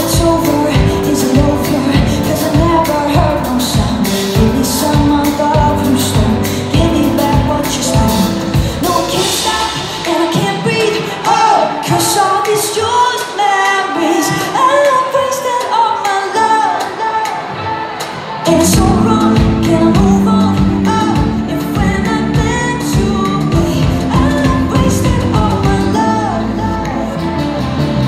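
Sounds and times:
bass guitar: 0:00.0 - 0:09.8, 0:18.5 - 0:28.0
drums: 0:00.0 - 0:28.0
lead singer singing: 0:00.0 - 0:28.0
live pop-rock band: 0:00.0 - 0:28.0.

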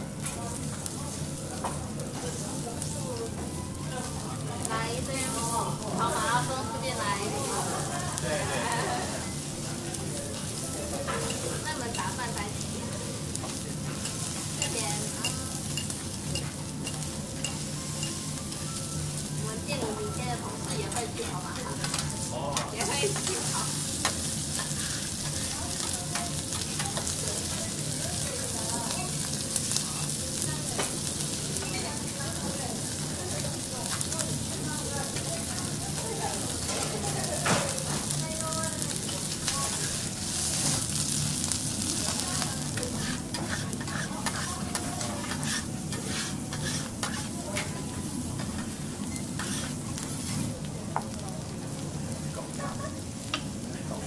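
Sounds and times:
beef sizzling on griddle: 0:00.0 - 0:54.0
metal spatulas scraping and tapping: 0:42.8 - 0:47.7, 0:49.4 - 0:49.8.

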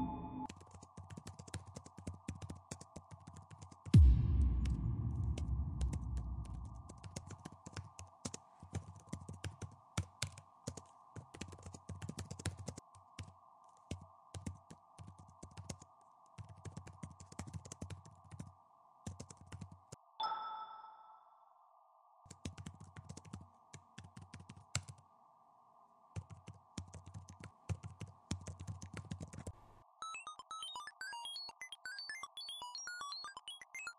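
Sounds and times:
bell-like ding: 0:00.0 - 0:00.5, 0:20.2 - 0:21.4
deep boom: 0:04.0 - 0:07.0
steady hum: 0:04.0 - 0:07.1.

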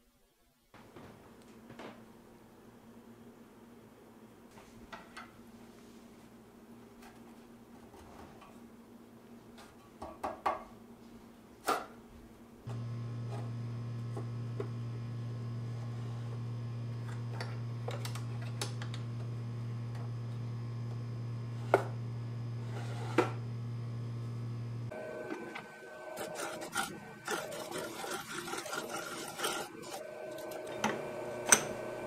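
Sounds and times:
low electrical hum: 0:10.6 - 0:32.0.

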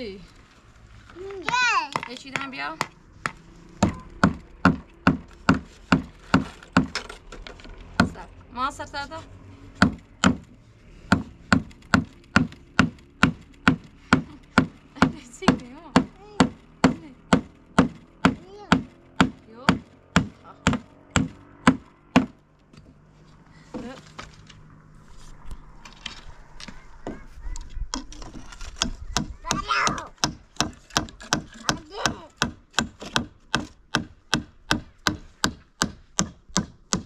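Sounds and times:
hammer driving nails into wood: 0:01.5 - 0:07.2, 0:09.8 - 0:22.4, 0:27.9 - 0:37.0.

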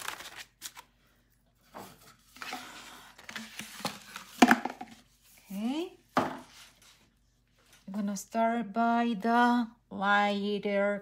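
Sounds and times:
paper rustle: 0:00.0 - 0:00.9.

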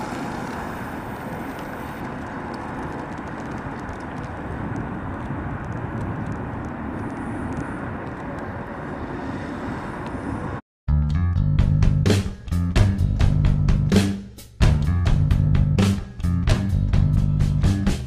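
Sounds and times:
music with drums and guitar: 0:11.3 - 0:18.0.

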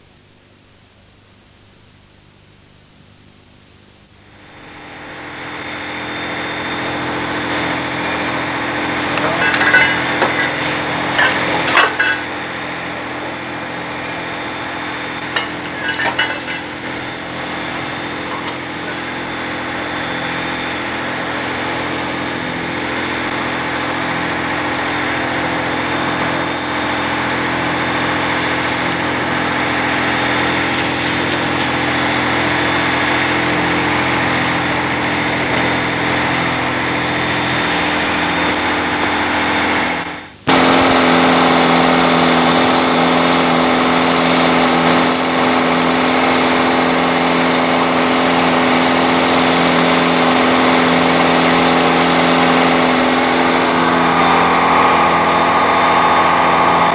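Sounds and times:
fire engine hum: 0:04.0 - 0:56.9.

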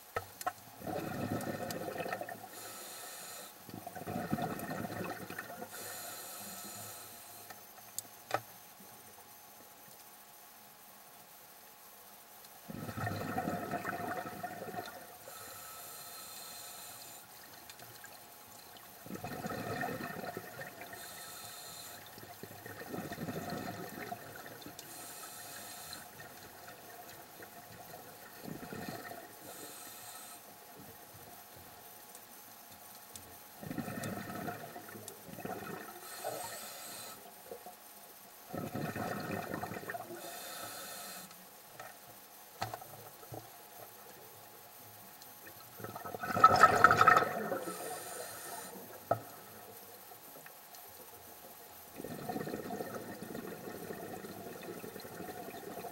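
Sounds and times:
exhaled bubbles gurgling: 0:00.8 - 0:02.6, 0:03.7 - 0:05.8, 0:12.7 - 0:15.4, 0:17.5 - 0:21.2, 0:21.9 - 0:29.6, 0:33.6 - 0:36.5, 0:38.4 - 0:40.4, 0:45.4 - 0:49.8, 0:51.8 - 0:55.9
regulator inhale hiss: 0:02.4 - 0:03.9, 0:05.6 - 0:07.7, 0:15.2 - 0:17.4, 0:20.9 - 0:22.2, 0:24.8 - 0:26.2, 0:28.4 - 0:31.2, 0:35.9 - 0:37.4, 0:40.0 - 0:41.5, 0:47.4 - 0:49.9.

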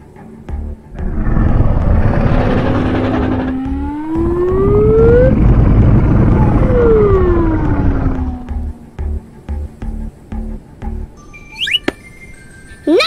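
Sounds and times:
rushing whoosh with siren-like tone: 0:01.0 - 0:08.8.

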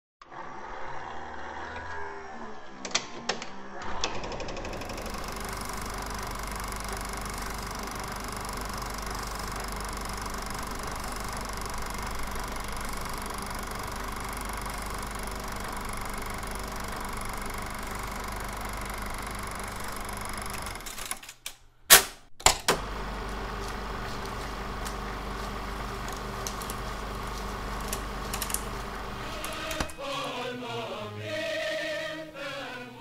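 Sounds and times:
rapid mechanical clatter: 0:04.1 - 0:21.2, 0:22.8 - 0:30.0
low hum: 0:22.8 - 0:30.0.

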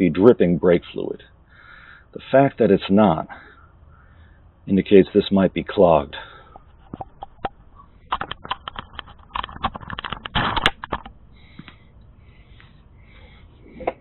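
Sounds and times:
light clicks and rustles: 0:06.5 - 0:12.8.

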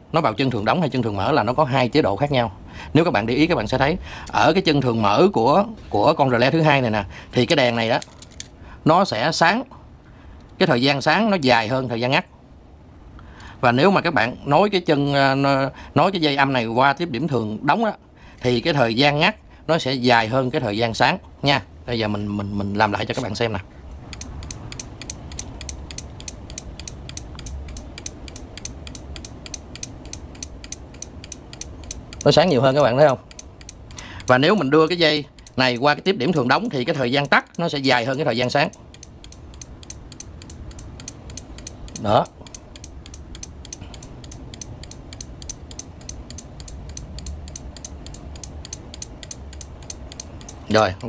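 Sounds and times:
relays clicking: 0:07.4 - 0:08.6, 0:23.1 - 0:51.0.

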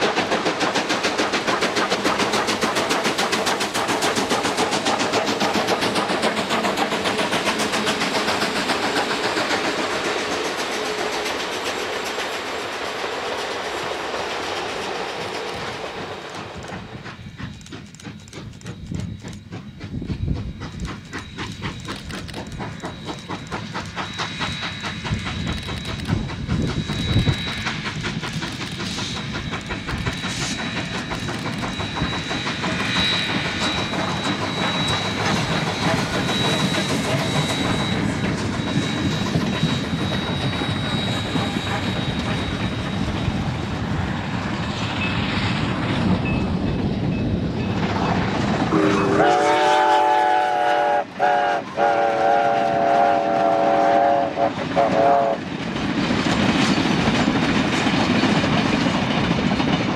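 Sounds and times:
steam locomotive exhaust beat: 0:00.0 - 0:59.9
steam whistle chord: 0:48.7 - 0:55.4.

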